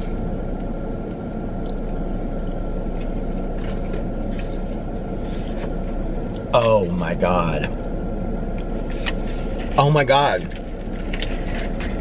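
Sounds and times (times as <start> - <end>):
person chewing food: 0.0 - 4.7, 10.8 - 12.0
car cabin rumble: 0.0 - 12.0.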